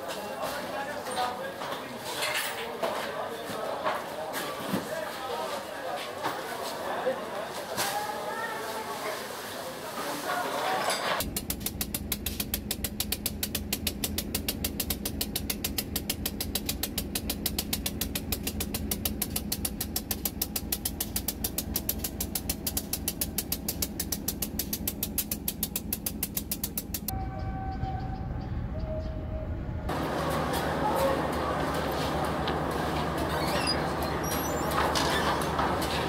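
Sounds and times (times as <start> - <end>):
diesel locomotive engine idling: 11.3 - 36.0.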